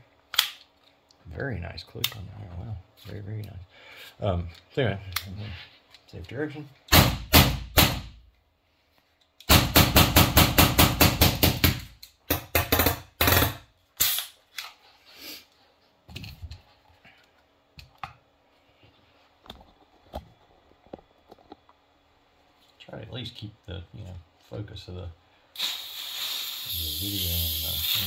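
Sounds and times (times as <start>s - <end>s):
launcher dry-firing sharp shots: 6.9s - 8.1s.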